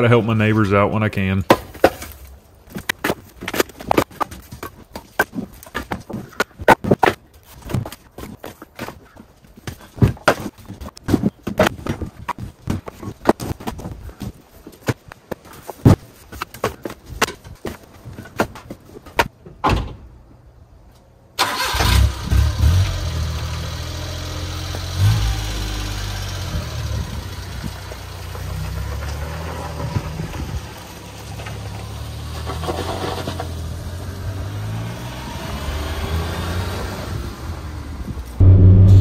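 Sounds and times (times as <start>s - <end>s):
truck engine starting and driving: 21.4s - 39.0s.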